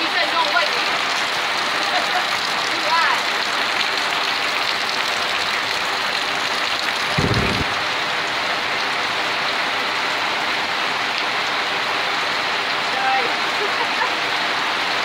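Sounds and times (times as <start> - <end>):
heavy rain on a canopy: 0.0 - 15.0
water pouring off canopy edge: 0.0 - 15.0
low thump: 7.2 - 7.7.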